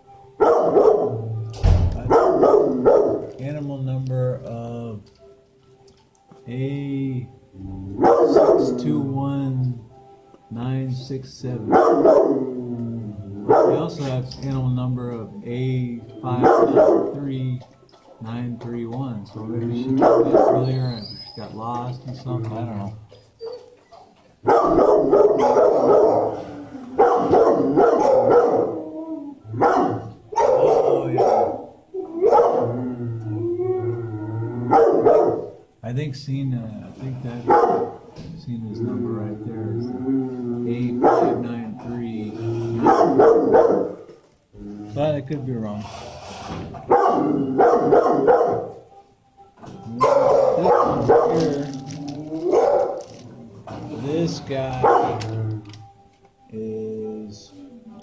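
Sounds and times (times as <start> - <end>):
dogs barking: 0.3 - 1.4, 2.0 - 3.4, 8.0 - 9.0, 11.6 - 14.2, 15.5 - 17.3, 19.7 - 21.6, 23.2 - 33.0, 34.6 - 35.7, 37.3 - 38.2, 40.3 - 44.2, 46.7 - 49.0, 49.8 - 55.6.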